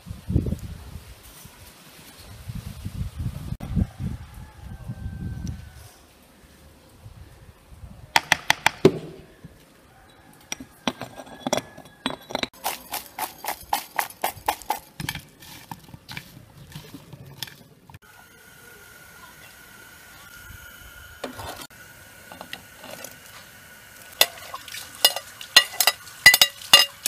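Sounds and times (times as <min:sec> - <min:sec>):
spoon clinking against glass jar: 0:10.8 - 0:14.1, 0:25.0 - 0:27.0.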